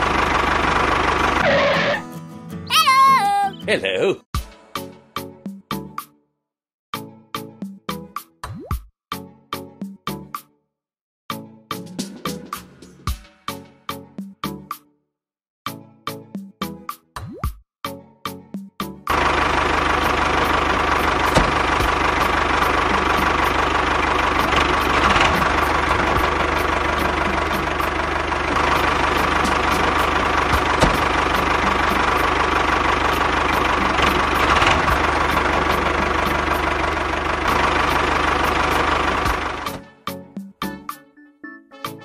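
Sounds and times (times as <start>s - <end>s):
tractor engine chugging: 0.0s - 2.0s, 19.1s - 39.8s.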